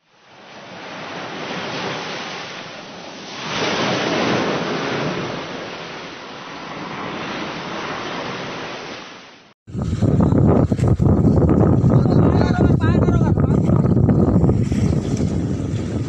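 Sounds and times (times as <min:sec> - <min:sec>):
ocean waves breaking: 0:00.1 - 0:16.0.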